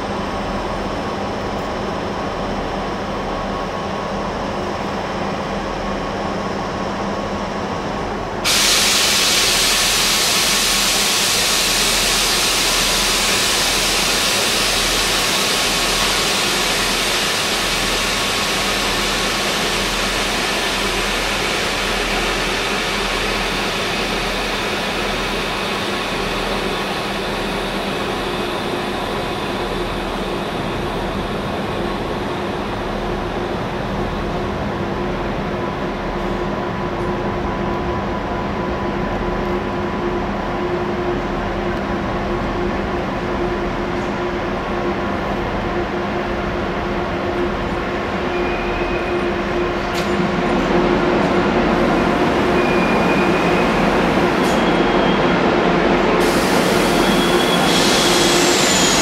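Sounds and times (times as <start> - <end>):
loud hiss: 8.5 - 30.6, 56.1 - 59.0
electric train rolling: 46.8 - 59.0.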